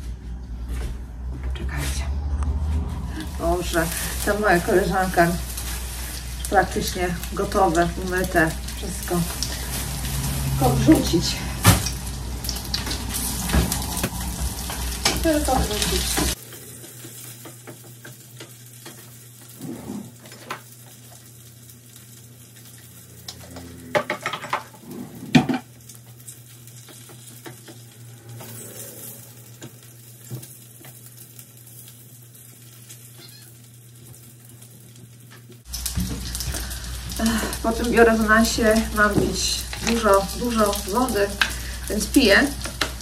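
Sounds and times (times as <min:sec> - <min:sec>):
low hum: 0:00.0 - 0:17.0, 0:27.7 - 0:30.3
cutlets sizzling in a pan: 0:03.1 - 0:19.6, 0:20.2 - 0:23.5, 0:25.7 - 0:43.0
kitchenware knocks and clatters: 0:24.0 - 0:25.7.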